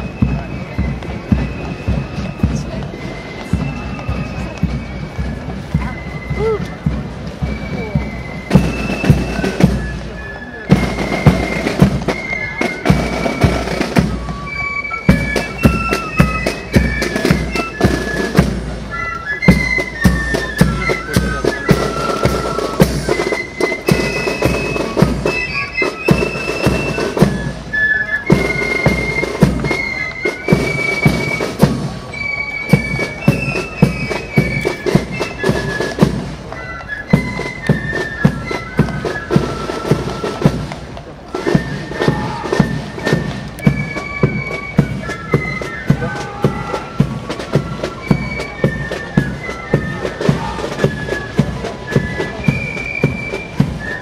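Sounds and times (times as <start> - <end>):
high piping melody: 0.0 - 40.4.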